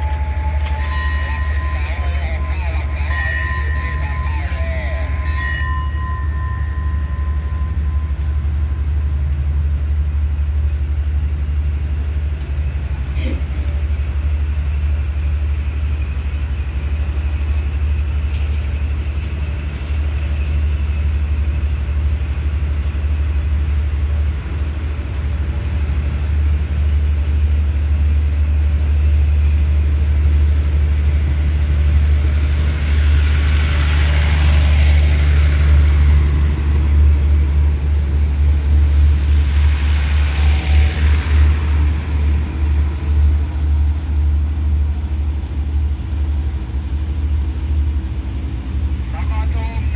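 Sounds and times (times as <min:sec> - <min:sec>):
train engine drone and rumble: 0:00.0 - 0:49.9
hiss: 0:31.8 - 0:44.2.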